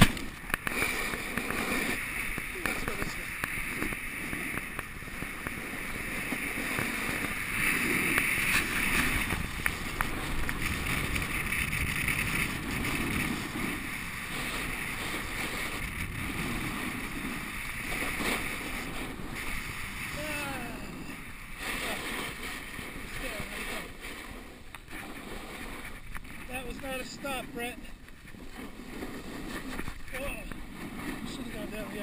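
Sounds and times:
skis scraping over snow: 0.0s - 32.0s
wind rushing over microphone: 0.0s - 32.0s.

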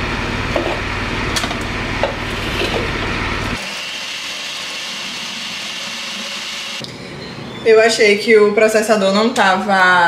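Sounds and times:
food processor motor grinding: 1.4s - 6.8s.

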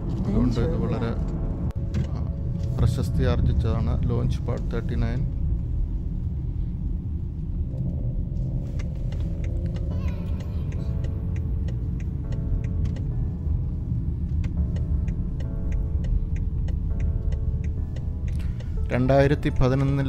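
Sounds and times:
car road and engine rumble: 0.0s - 20.0s
background music with ticking beat: 0.1s - 20.0s.

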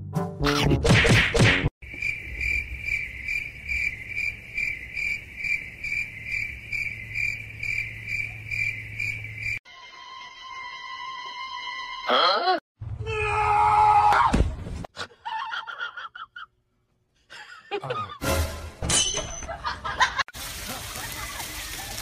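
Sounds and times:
cricket chirping: 1.8s - 9.6s.

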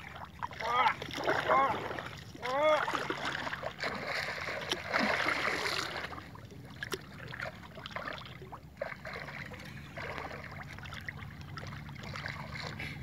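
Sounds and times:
fish thrashing and splashing: 0.0s - 13.0s
swirling water: 0.0s - 13.0s.

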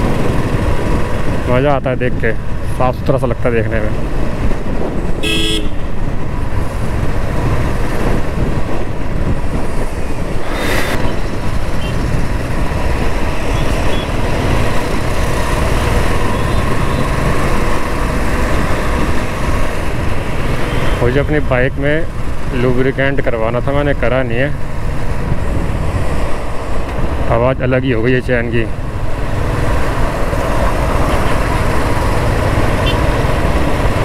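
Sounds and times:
road noise: 0.0s - 34.0s
vehicle horn toot: 5.2s - 5.8s.

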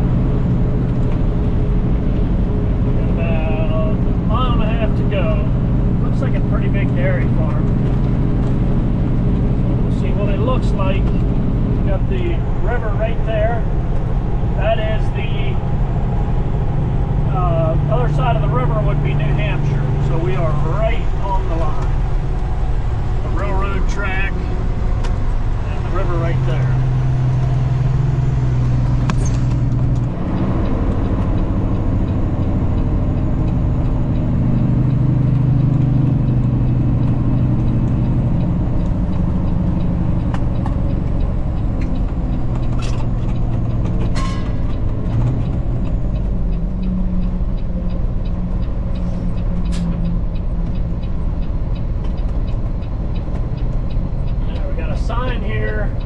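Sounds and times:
road noise: 0.0s - 56.0s
truck engine: 0.0s - 56.0s.

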